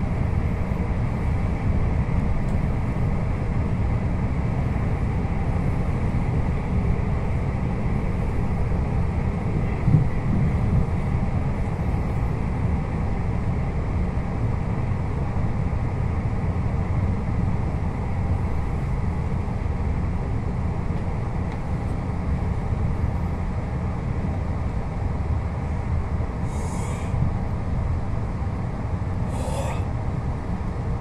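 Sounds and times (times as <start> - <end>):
train carriage rumbling on rails: 0.0 - 31.0.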